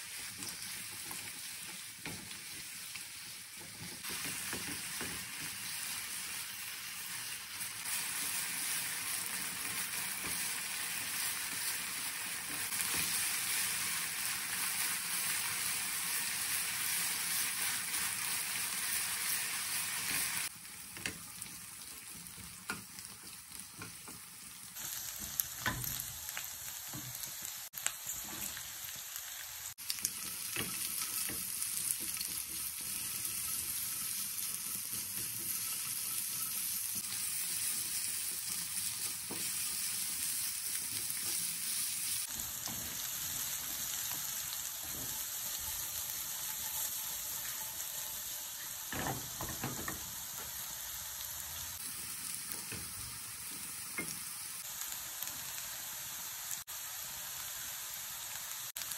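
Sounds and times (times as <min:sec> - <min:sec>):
food sizzling in frying pan: 0:00.0 - 0:58.9
spatula scraping and tapping pan: 0:30.2 - 0:39.7.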